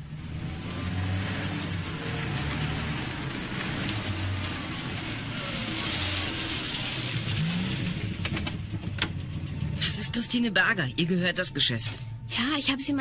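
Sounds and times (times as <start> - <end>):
car engine running slowly: 0.0 - 10.5.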